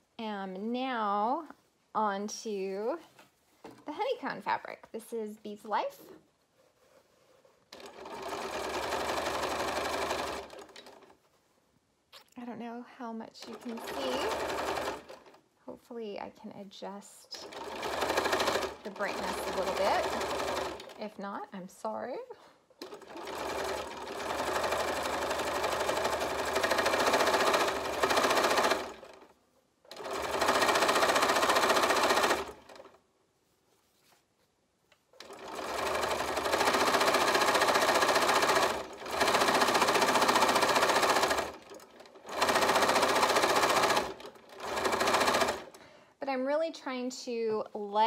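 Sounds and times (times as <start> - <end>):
sewing machine stitching: 7.7 - 11.2, 13.4 - 15.4, 17.4 - 21.1, 22.8 - 29.3, 29.9 - 33.0, 35.2 - 45.8.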